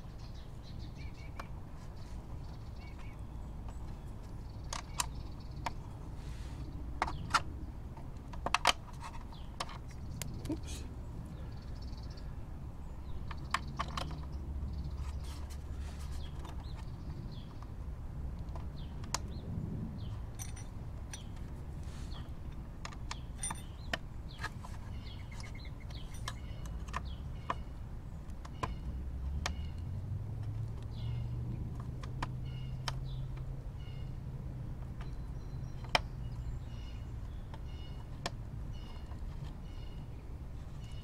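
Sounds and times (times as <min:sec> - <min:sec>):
small metallic clicks: 0:02.7 - 0:05.8, 0:13.0 - 0:15.0, 0:22.2 - 0:33.5.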